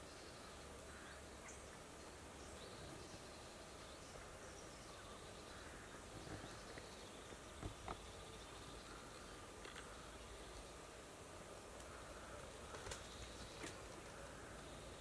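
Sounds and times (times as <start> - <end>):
distant bird chirps: 2.4 - 10.8.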